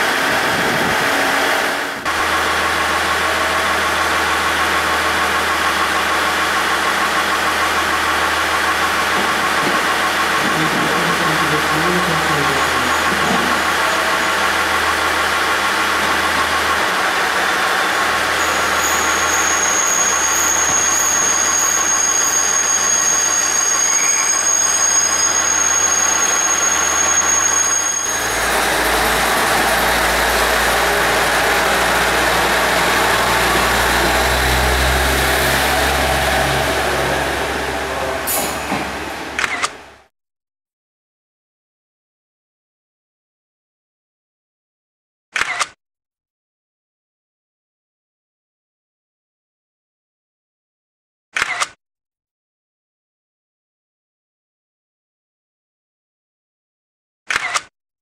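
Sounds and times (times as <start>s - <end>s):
diesel railcar engine: 0.0s - 40.0s
wheel-on-rail noise: 0.0s - 40.0s
high steady squeal: 1.0s - 39.9s.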